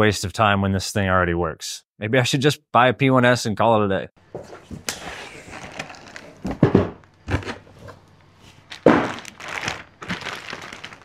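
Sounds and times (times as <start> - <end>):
packing material rustling: 4.7 - 11.0
cardboard box thunks: 6.3 - 8.0, 8.7 - 10.8.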